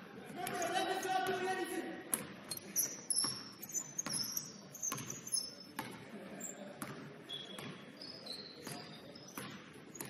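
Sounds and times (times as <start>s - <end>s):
basketball bouncing on wooden floor: 2.1s - 6.1s, 6.8s - 7.9s, 8.6s - 10.0s
sneaker squeaks: 2.1s - 10.0s.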